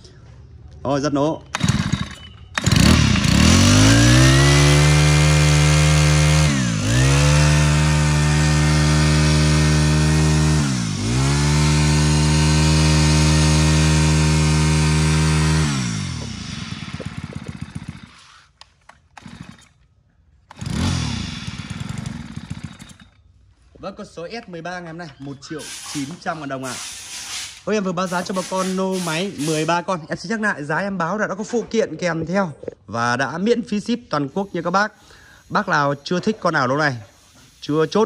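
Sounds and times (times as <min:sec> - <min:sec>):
brush cutter engine revving: 0:01.5 - 0:19.8, 0:20.5 - 0:23.2.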